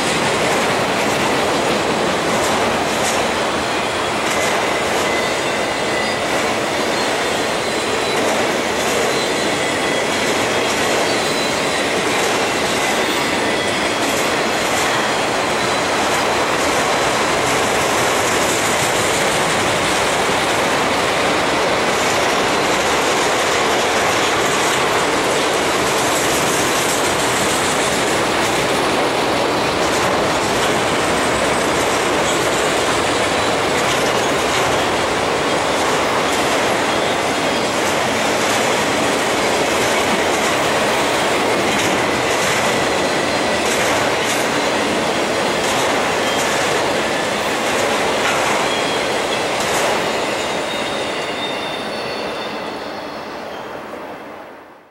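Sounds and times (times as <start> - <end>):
steel wheels running on rail: 0.0 - 54.5
faint high wheel squeal: 3.4 - 16.1, 32.6 - 37.8, 48.4 - 54.3.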